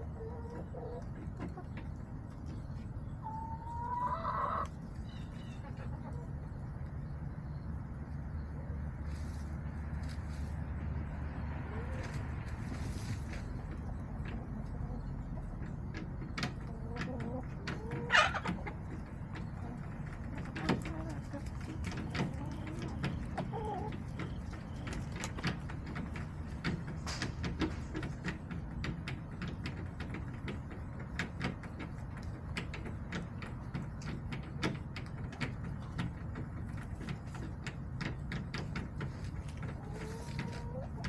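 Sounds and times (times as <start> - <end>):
hens clicking and tapping: 0.0 - 41.0.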